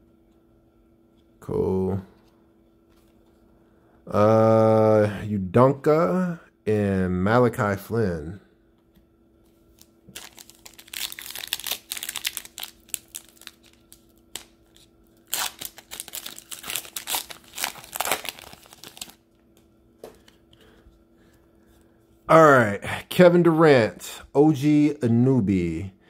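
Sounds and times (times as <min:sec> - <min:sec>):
plastic wrapper crinkling: 0:09.7 - 0:19.2.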